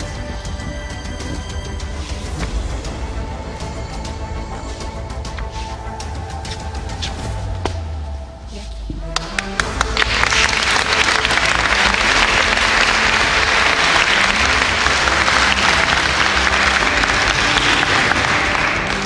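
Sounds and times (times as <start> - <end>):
audience applauding: 9.2 - 19.0.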